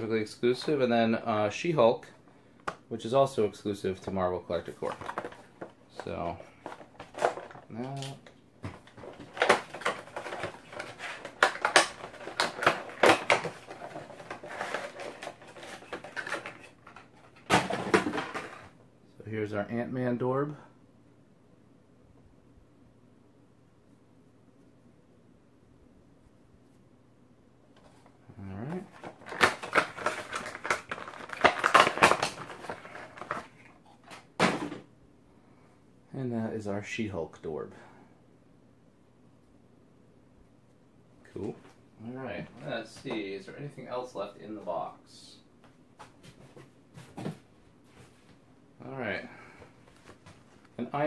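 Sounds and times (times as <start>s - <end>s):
cardboard and plastic packaging rustling: 3.9s - 18.8s, 28.8s - 34.9s.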